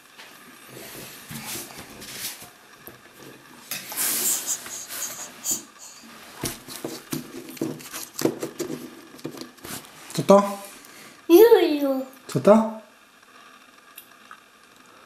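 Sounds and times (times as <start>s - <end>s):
plastic knocking on wooden table: 6.8s - 9.5s.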